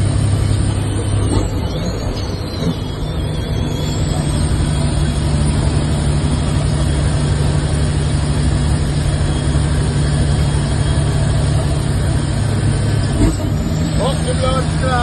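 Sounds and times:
diesel truck engine drone: 0.0 - 15.0
road noise: 0.0 - 15.0.

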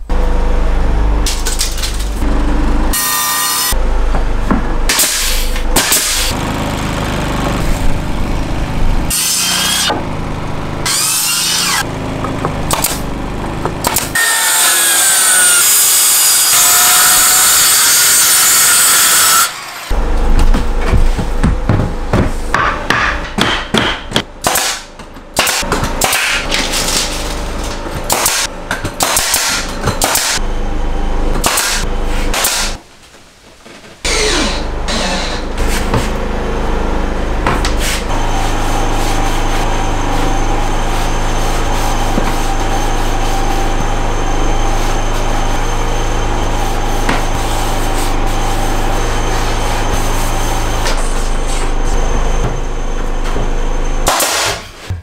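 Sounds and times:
nail gun firing: 4.9 - 6.3, 24.4 - 26.5, 28.1 - 28.4, 29.0 - 30.4, 31.4 - 32.8, 54.1 - 54.7
motor droning: 5.6 - 14.5, 34.1 - 54.1
knocks on wood: 20.9 - 24.2.

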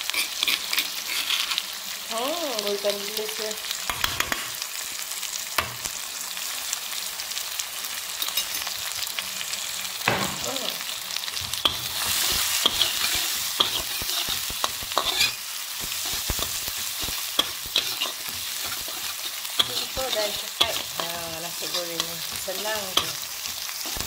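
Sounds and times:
metal spatula scraping a wok: 0.0 - 1.8, 11.4 - 24.0
food sizzling in hot oil: 0.0 - 24.0.

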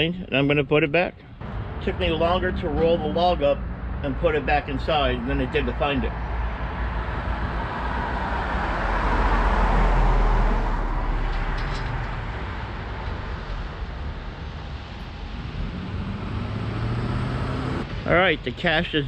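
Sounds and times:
low engine hum: 1.2 - 18.0
car passing by: 6.0 - 18.2.

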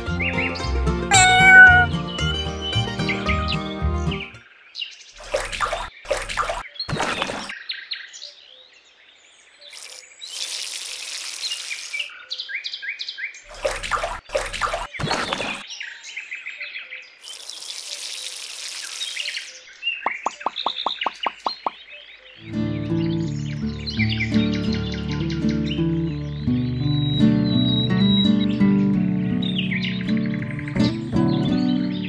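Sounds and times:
birds chirping and singing: 0.0 - 9.8, 19.1 - 32.0
cup splashing in water: 5.2 - 7.5, 13.5 - 15.6
water pouring: 5.2 - 7.5, 9.7 - 12.1, 13.5 - 15.6, 17.2 - 19.5.

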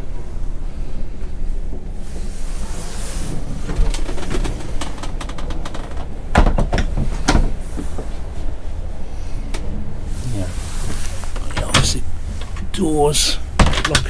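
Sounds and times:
steady low rumble: 0.0 - 14.0
wooden door clicks and knocks: 6.3 - 7.5, 13.6 - 14.0.

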